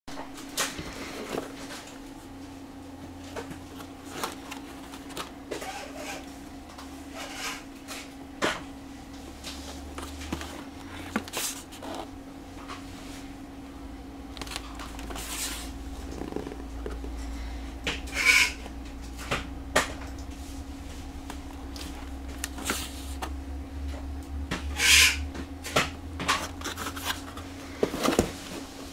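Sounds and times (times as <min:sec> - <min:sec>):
steady low hum: 0:00.1 - 0:28.9.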